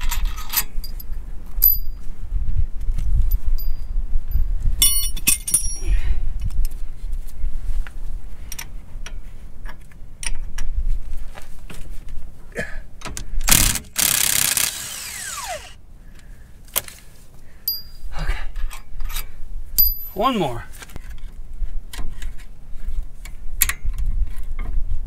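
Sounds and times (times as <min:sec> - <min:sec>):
metal tools clinking: 0:04.8 - 0:05.9, 0:18.6 - 0:20.4
impact wrench whine: 0:13.5 - 0:15.8.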